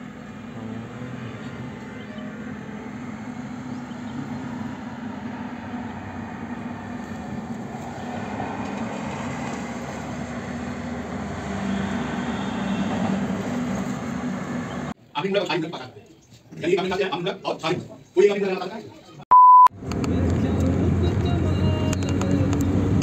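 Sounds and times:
passenger train rumble: 0:00.0 - 0:15.0.

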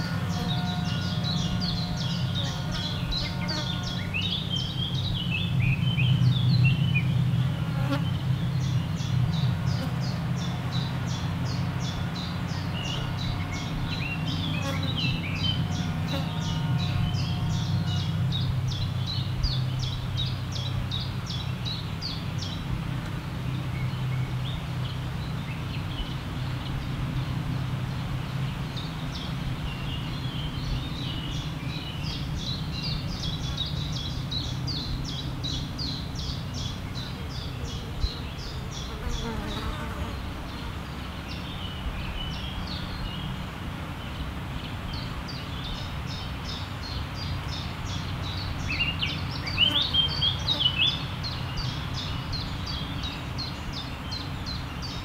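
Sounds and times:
insect buzzing: 0:38.8 - 0:40.3.

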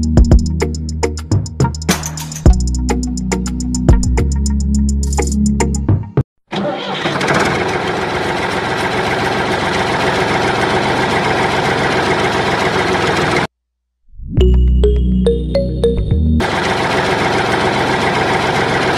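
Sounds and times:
background music: 0:00.0 - 0:06.2, 0:14.4 - 0:16.4
engine chugging: 0:06.6 - 0:13.5, 0:16.4 - 0:18.9.

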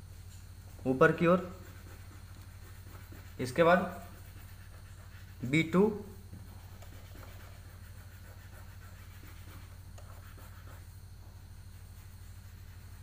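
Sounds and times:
pencil touching paper: 0:00.8 - 0:10.9.

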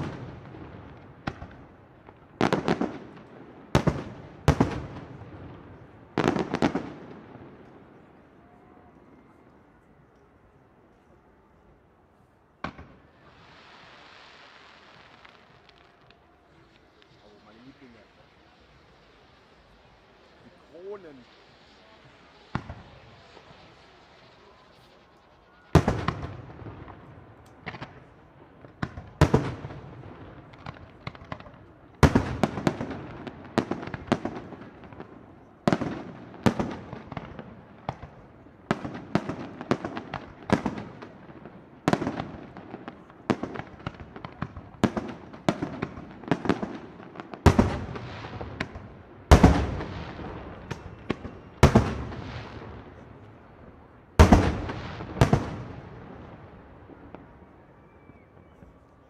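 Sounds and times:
small firework pops: 0:00.0 - 0:08.0, 0:12.6 - 0:53.5, 0:54.1 - 0:59.0.

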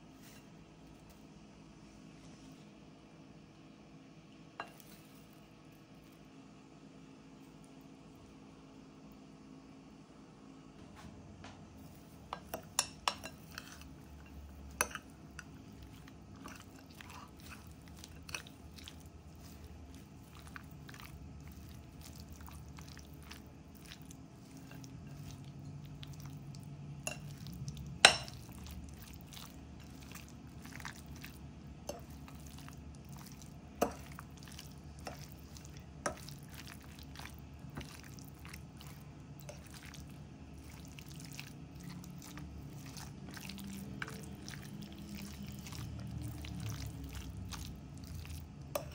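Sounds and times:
fork stirring wet mix: 0:11.8 - 0:48.9.

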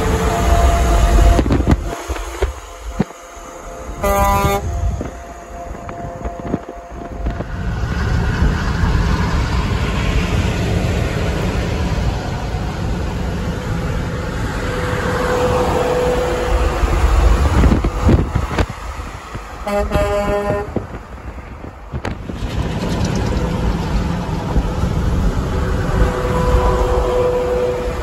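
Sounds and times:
air horn blast: 0:00.0 - 0:07.5, 0:19.6 - 0:20.9, 0:25.8 - 0:28.0
highway road noise: 0:00.0 - 0:28.0.

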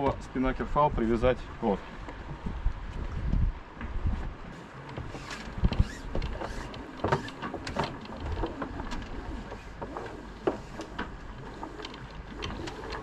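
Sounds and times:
rope hardware clicks and knocks: 0:04.8 - 0:13.0
rope being hauled down: 0:05.1 - 0:07.4.

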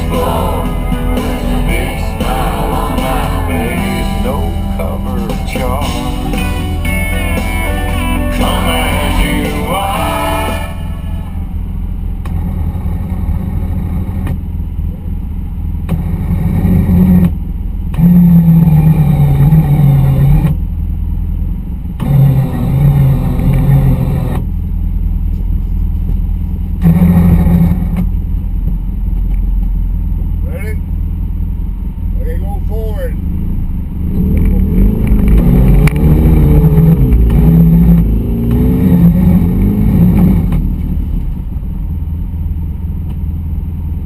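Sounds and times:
music with singing: 0:00.0 - 0:11.5
atv engine idling: 0:00.0 - 0:16.2, 0:19.2 - 0:38.6, 0:40.6 - 0:44.0.

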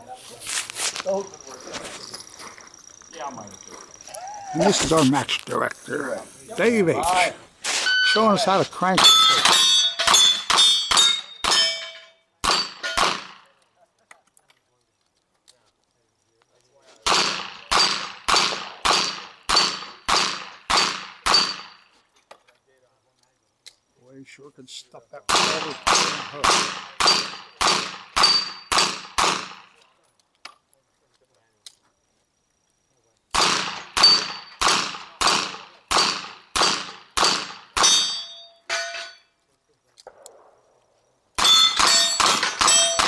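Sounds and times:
steel plate ringing: 0:09.0 - 0:13.0, 0:37.8 - 0:39.3, 0:41.4 - 0:43.0.

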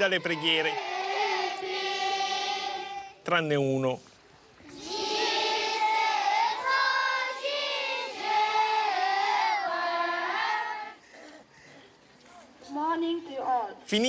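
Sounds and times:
children chanting a prayer: 0:00.0 - 0:03.2, 0:04.6 - 0:11.4.

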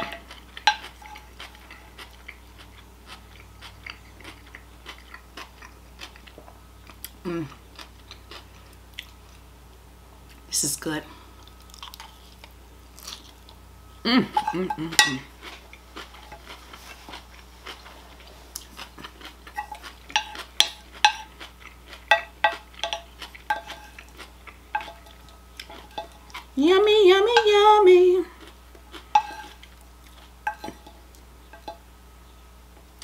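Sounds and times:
person humming mmm: 0:07.2 - 0:07.6, 0:14.0 - 0:15.3.

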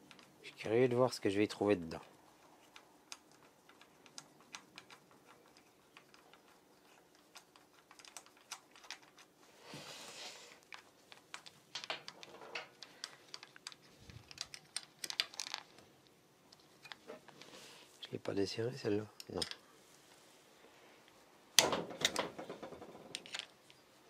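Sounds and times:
metallic clicks of nuts and washers: 0:19.2 - 0:19.6.

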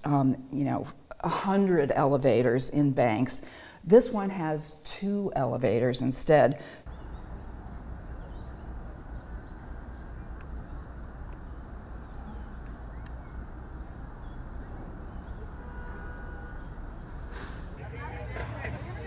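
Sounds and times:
distant traffic rumble: 0:06.8 - 0:19.0
faint bird chirps: 0:06.9 - 0:17.3.

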